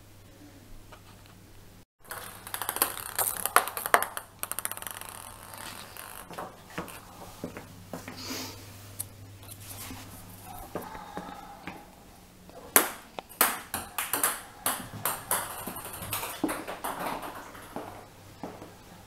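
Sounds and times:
ping pong ball bouncing on tile: 0:02.1 - 0:07.6, 0:12.7 - 0:18.7.

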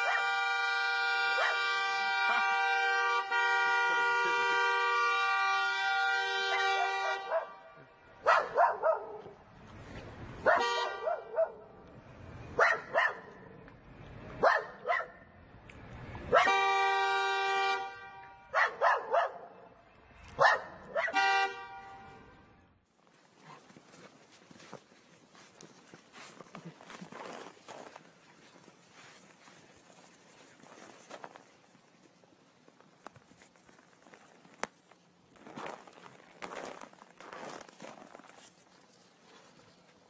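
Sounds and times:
dog barking: 0:00.0 - 0:00.3, 0:01.4 - 0:01.7, 0:06.5 - 0:07.6, 0:08.2 - 0:09.4, 0:10.4 - 0:11.7, 0:12.6 - 0:13.4, 0:14.4 - 0:15.2, 0:18.5 - 0:19.6, 0:20.4 - 0:21.2
long steady horn tone: 0:00.0 - 0:08.2, 0:10.5 - 0:11.2, 0:16.4 - 0:18.6, 0:21.1 - 0:22.8.

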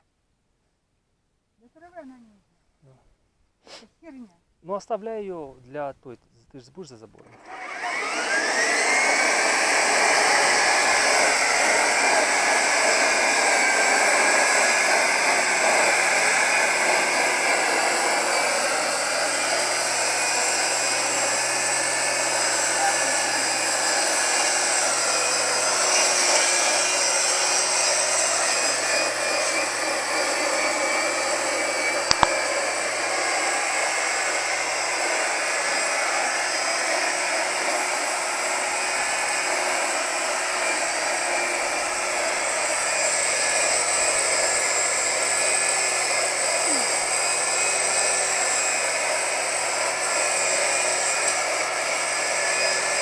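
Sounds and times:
electric string trimmer running: 0:07.2 - 0:53.0
sharp click: 0:32.1 - 0:32.4.

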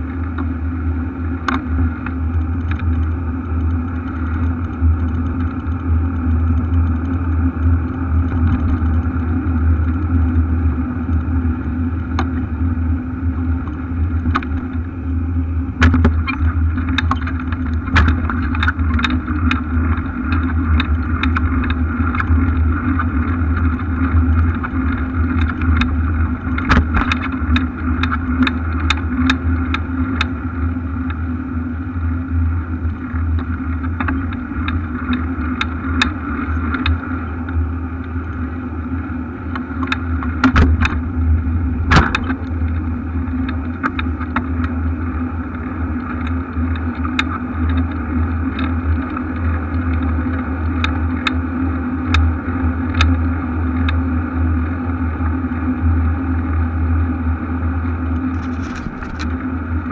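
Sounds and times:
low rumble and hum: 0:00.0 - 0:59.9
bicycle clicks and knocks: 0:15.8 - 0:30.3, 0:41.9 - 0:44.8, 0:58.2 - 0:59.4.

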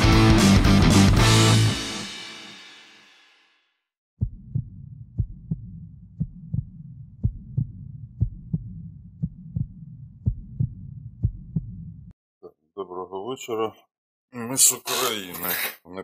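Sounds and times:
heartbeat thumps: 0:04.2 - 0:12.1.

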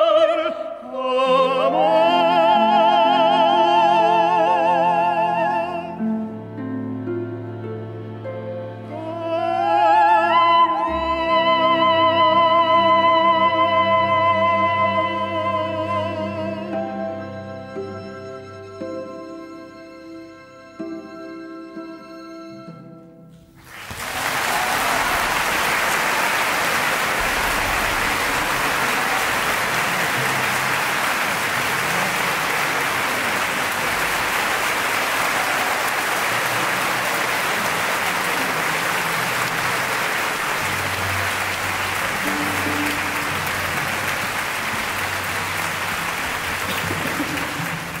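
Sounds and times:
audience applauding: 0:23.6 - 0:48.0
orchestral chord: 0:36.4 - 0:46.7.

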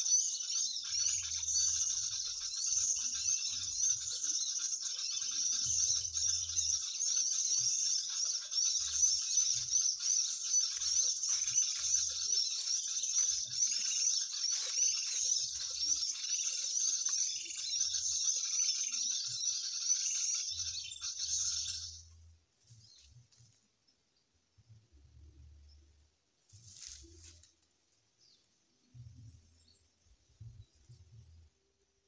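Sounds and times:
small birds chattering: 0:00.0 - 0:22.1.

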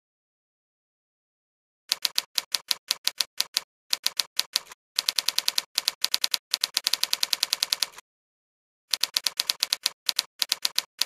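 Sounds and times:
typewriter keys clacking: 0:08.9 - 0:11.0.

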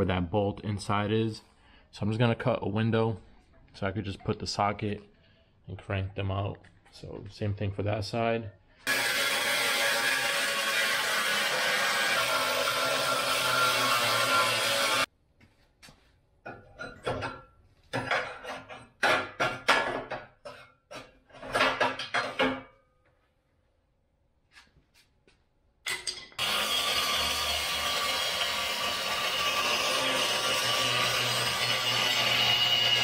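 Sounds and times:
angle grinder cutting metal: 0:08.9 - 0:15.1, 0:26.4 - 0:33.0.

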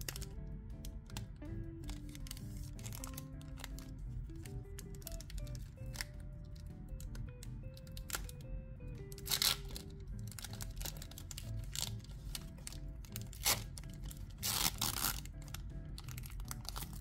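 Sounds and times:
foil wrapper tearing and crinkling: 0:00.0 - 0:00.3, 0:01.9 - 0:06.1, 0:09.1 - 0:17.0
quiet background music: 0:00.0 - 0:17.0.

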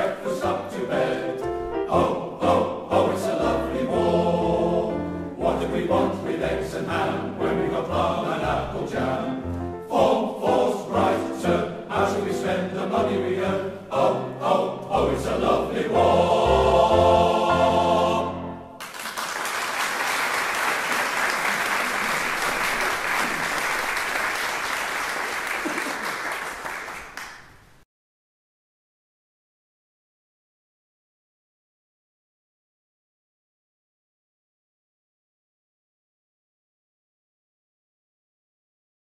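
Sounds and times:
male choir singing: 0:00.0 - 0:18.7
audience applause: 0:18.8 - 0:27.6.

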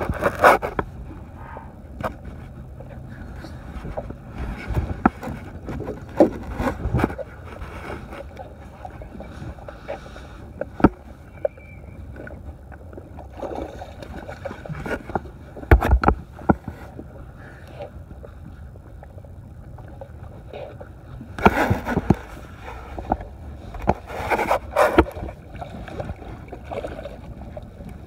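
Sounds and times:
water splashing against hull: 0:00.0 - 0:28.0
knocks and clunks of gear: 0:03.8 - 0:08.3, 0:14.7 - 0:16.9.

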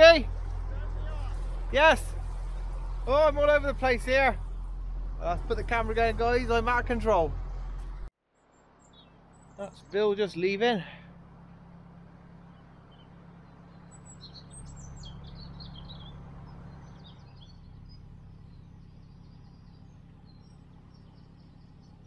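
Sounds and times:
boat engine humming: 0:00.0 - 0:22.0
small birds chirping: 0:00.0 - 0:22.0.

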